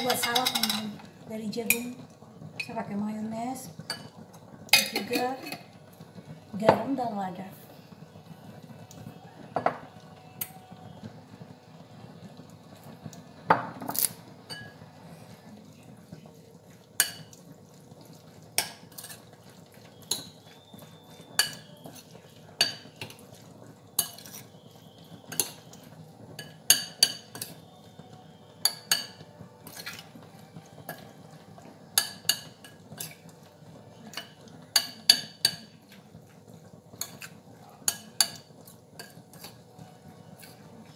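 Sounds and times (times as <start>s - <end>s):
spoon clinking in glass bowl: 0.0s - 1.0s, 20.0s - 20.4s, 21.4s - 23.2s, 24.0s - 24.4s, 28.6s - 30.0s.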